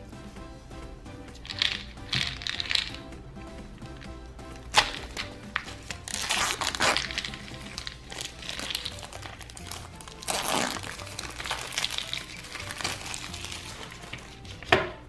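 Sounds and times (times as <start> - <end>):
background music: 0.0 - 15.0
plastic wrap crinkling: 4.7 - 14.7.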